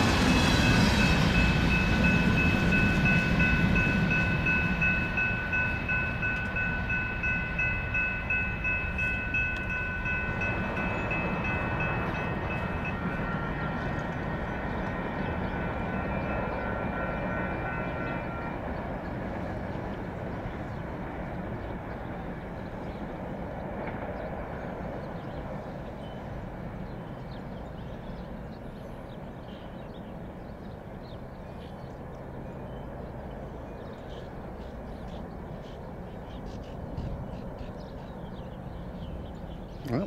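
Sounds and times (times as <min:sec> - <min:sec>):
freight train rumble: 0:00.0 - 0:40.0.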